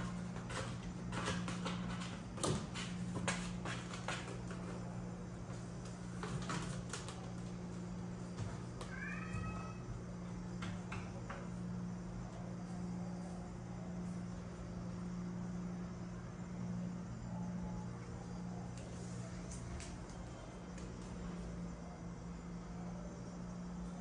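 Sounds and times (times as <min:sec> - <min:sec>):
cat meowing: 0:08.9 - 0:09.8.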